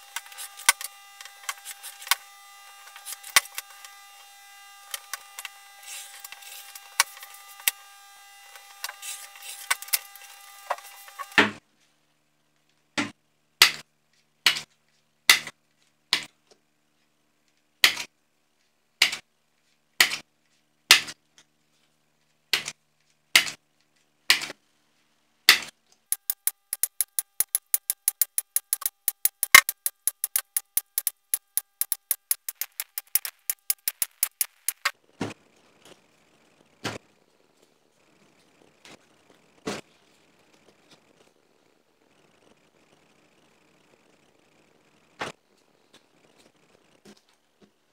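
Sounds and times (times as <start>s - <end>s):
faint steady hum: 0.0s - 47.9s
corner punch clicking: 26.1s - 34.9s.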